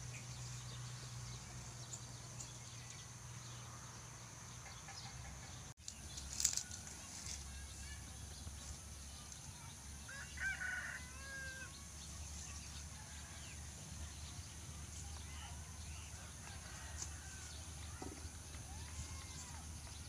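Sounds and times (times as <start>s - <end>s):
rooster crowing: 10.1s - 11.8s, 16.1s - 17.8s.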